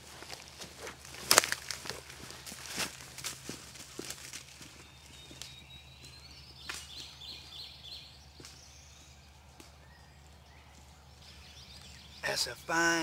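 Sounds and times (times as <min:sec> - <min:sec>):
footsteps through tall grass: 0:00.0 - 0:07.6
songbird singing: 0:00.0 - 0:13.0.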